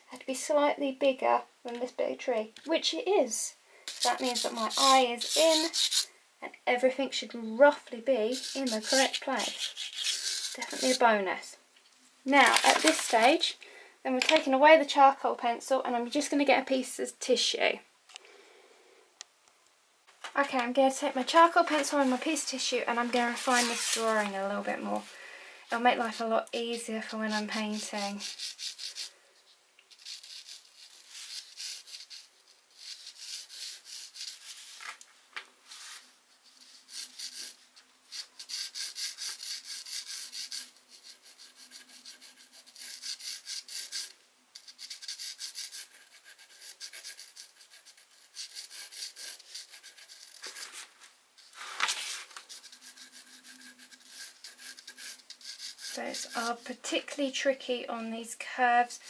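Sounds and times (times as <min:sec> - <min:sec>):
charcoal pencil scratching: 0:03.9 - 0:06.1, 0:08.2 - 0:11.0, 0:21.1 - 0:25.0, 0:25.7 - 0:34.8, 0:35.8 - 0:56.9.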